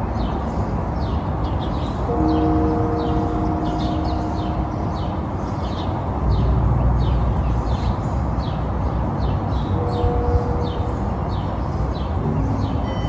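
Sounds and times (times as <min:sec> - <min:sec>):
brief steady tone: 0:12.2 - 0:13.0.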